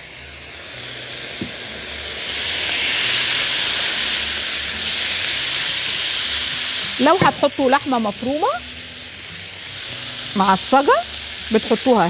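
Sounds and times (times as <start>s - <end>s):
vegetables sizzling in a wok: 0.0s - 12.0s.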